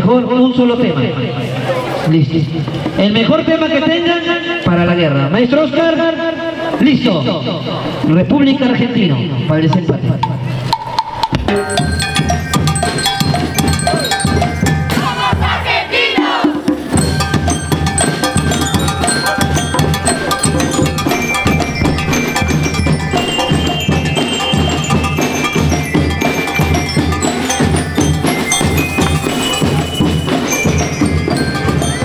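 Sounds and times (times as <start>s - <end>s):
bass and snare drums beating: 9.7s - 32.0s
ringing metallic tones: 9.8s - 15.7s, 16.8s - 32.0s
marching band playing: 10.3s - 32.0s.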